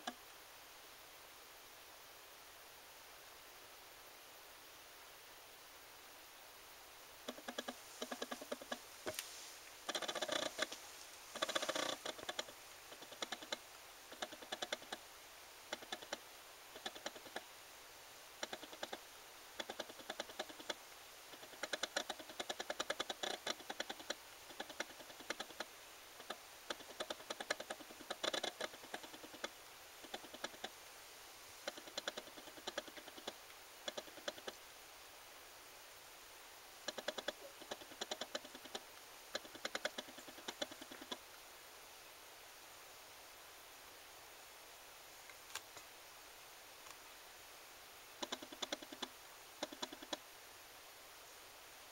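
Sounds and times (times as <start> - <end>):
faint steady hiss: 0.0 - 51.9
rapid clicks: 7.3 - 9.3, 9.9 - 15.0, 15.7 - 17.4, 18.4 - 19.0, 19.6 - 30.7, 31.6 - 34.6, 36.9 - 41.2, 48.2 - 50.2.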